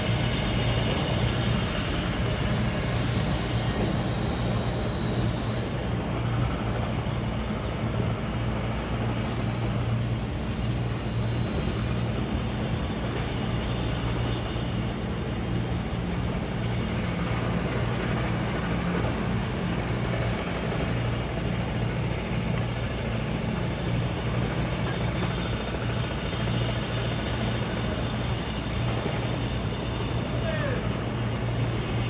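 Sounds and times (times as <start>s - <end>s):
helicopter engine and rotor drone: 0.0s - 32.0s.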